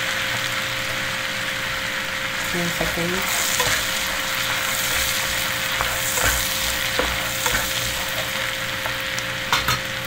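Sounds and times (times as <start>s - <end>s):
garlic sizzling in butter: 0.0s - 10.0s
spatula stirring in pan: 2.8s - 9.0s
spatula tapping pan: 4.9s - 9.0s.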